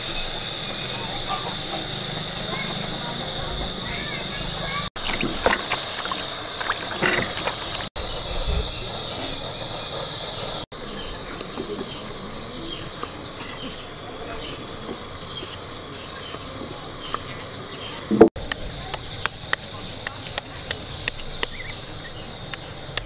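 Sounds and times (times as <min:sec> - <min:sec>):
high insect drone: 0:00.0 - 0:23.0
water splashing in a basin: 0:05.0 - 0:07.9.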